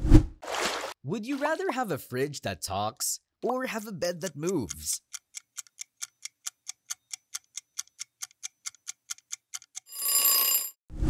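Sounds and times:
clock ticking: 3.8 - 9.9.

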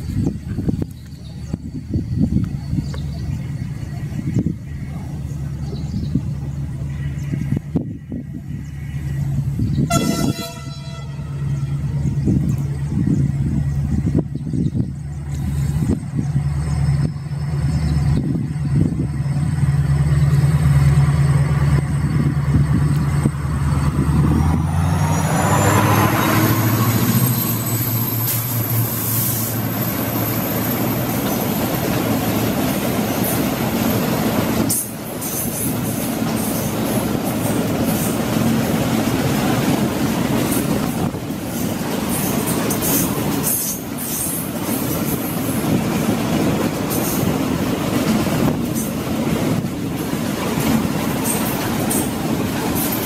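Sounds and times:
diesel locomotive engine hum: 0.0 - 53.0
train wagons rumbling and rattling: 0.0 - 53.0
high wheel squeal: 24.5 - 32.4.

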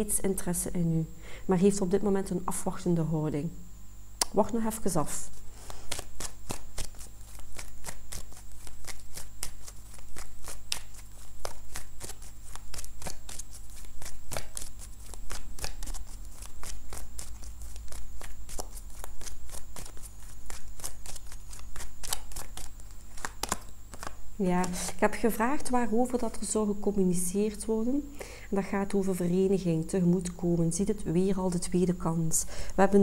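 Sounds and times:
steady low hum: 0.0 - 33.0
cards being shuffled: 5.2 - 26.4.

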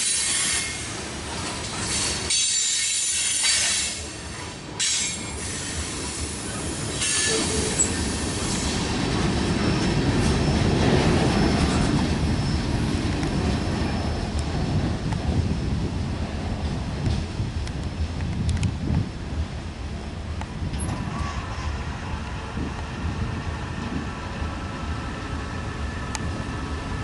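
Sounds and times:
train wheels squealing: 0.0 - 14.5
freight cars rumbling: 3.9 - 27.0.

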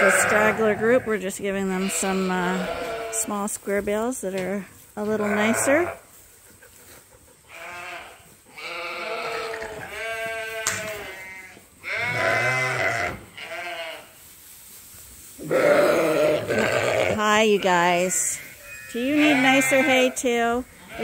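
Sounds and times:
lambs bleating: 0.0 - 3.3, 5.0 - 6.0, 7.5 - 14.1, 15.4 - 21.0.

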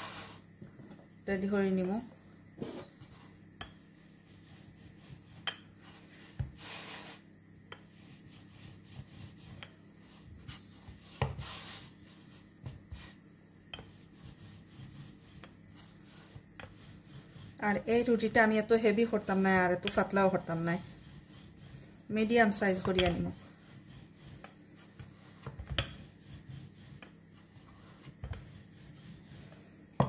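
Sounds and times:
rolling pin rolling dough: 0.0 - 30.0
rolling pin clicking on board: 19.7 - 20.1, 22.8 - 23.2.

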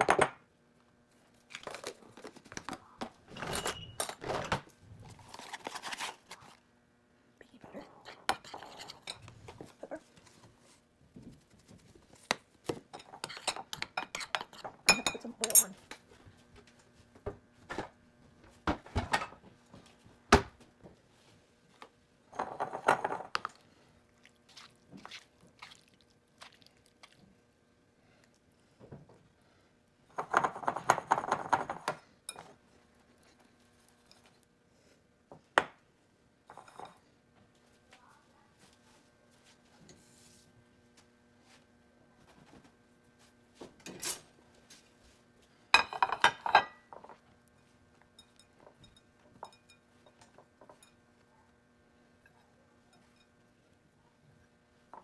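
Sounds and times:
faint steady hum: 0.0 - 55.0
kitchen items rustling and clattering: 1.1 - 6.7, 7.9 - 23.8, 30.0 - 34.4, 41.4 - 51.2.

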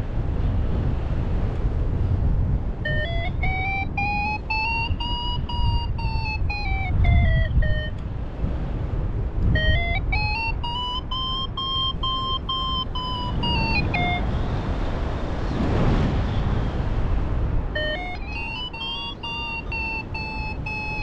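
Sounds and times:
wind rumbling on microphone: 0.0 - 21.0
variometer beeping: 2.8 - 8.0, 9.4 - 14.4, 17.8 - 21.0.

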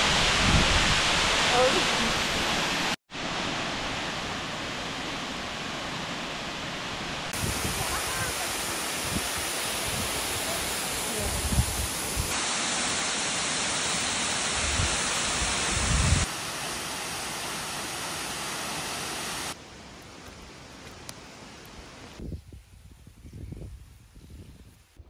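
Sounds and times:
waterfall rushing: 0.0 - 19.6.

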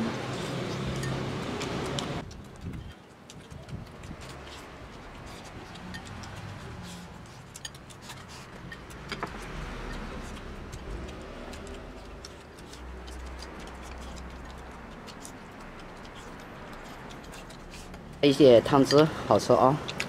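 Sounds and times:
chopsticks clicking against a bowl: 0.1 - 18.2
steady low rumble: 8.6 - 18.3.

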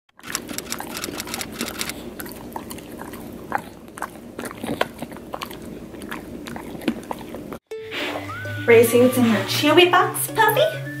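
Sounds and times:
dog crunching a treat: 0.1 - 7.6.

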